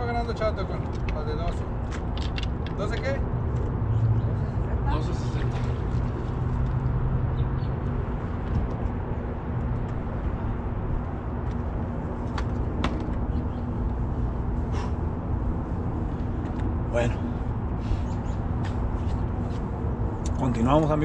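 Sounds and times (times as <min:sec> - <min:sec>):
city background rumble: 0:00.0 - 0:21.0
constant low hum: 0:00.0 - 0:21.0.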